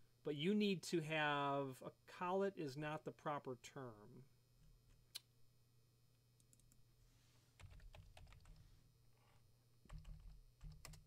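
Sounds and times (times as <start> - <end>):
faint steady hum: 0.0 - 11.0
faint keyboard typing: 6.4 - 6.8, 7.6 - 11.0.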